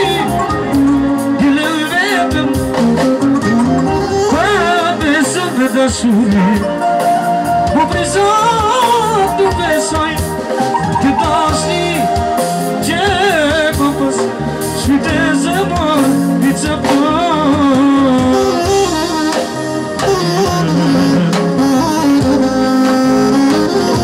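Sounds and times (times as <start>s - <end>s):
man singing: 0.0s - 3.3s, 4.1s - 7.0s, 7.6s - 19.2s
saxophone: 0.0s - 15.4s, 16.0s - 24.0s
band playing: 0.0s - 24.0s.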